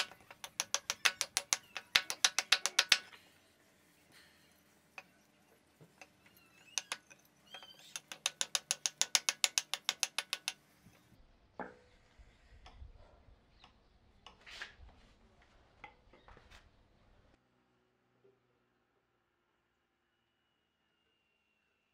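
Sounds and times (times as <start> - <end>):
hatchet knocking on wood: 0.0 - 3.1, 7.9 - 10.6
hatchet scraping wood: 0.0 - 3.1, 6.0 - 10.6
rapid sharp clicks: 7.9 - 10.6.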